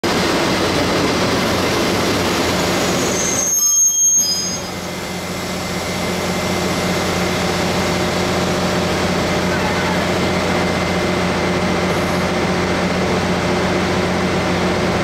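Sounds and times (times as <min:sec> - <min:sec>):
electric locomotive hum: 0:00.0 - 0:15.0
locomotive rumble: 0:00.0 - 0:15.0
brake and wheel squeal: 0:02.6 - 0:05.0.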